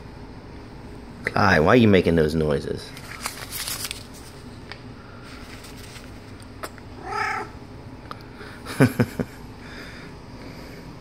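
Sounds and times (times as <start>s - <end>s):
cat meowing: 7.0s - 7.6s.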